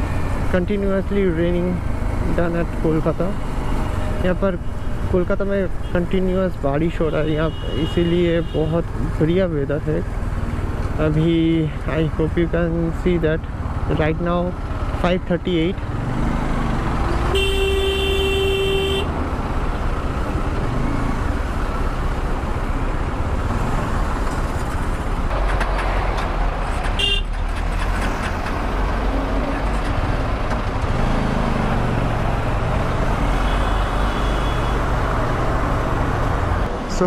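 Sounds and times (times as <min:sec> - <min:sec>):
vehicle horns: 0:07.0 - 0:08.8, 0:17.2 - 0:19.1, 0:27.0 - 0:27.4, 0:33.3 - 0:35.0
motorcycle engine: 0:29.8 - 0:36.4.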